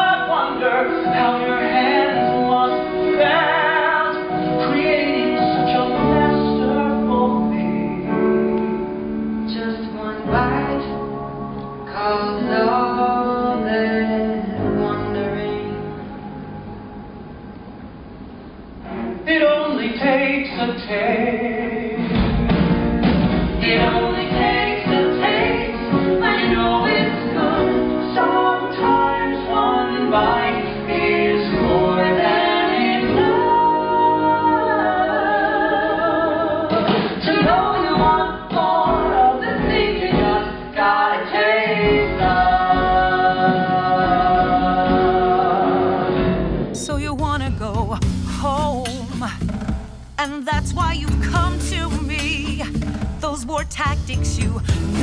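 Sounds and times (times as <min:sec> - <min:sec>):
man and woman singing duet: 0:00.0 - 0:08.8, 0:09.4 - 0:11.1, 0:11.8 - 0:16.1, 0:23.6 - 0:49.6, 0:50.2 - 0:55.0
instrumental accompaniment: 0:22.0 - 0:55.0.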